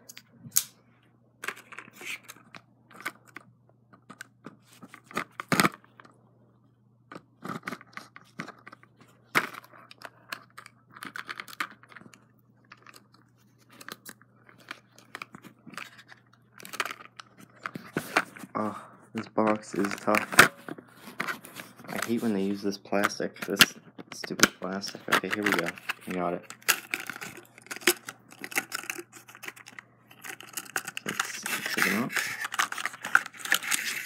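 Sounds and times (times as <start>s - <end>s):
knife scraping plastic case: 25.0s - 34.0s.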